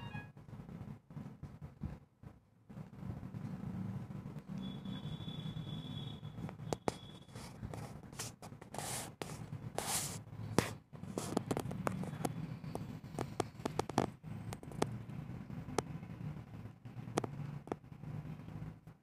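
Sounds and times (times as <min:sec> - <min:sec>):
pencil scratching on paper: 0:06.8 - 0:12.2.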